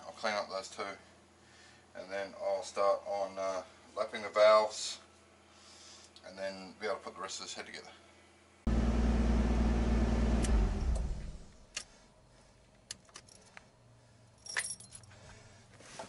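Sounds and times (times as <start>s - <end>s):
car engine droning: 8.7s - 11.6s
keys jingling: 13.0s - 13.6s, 14.4s - 15.2s.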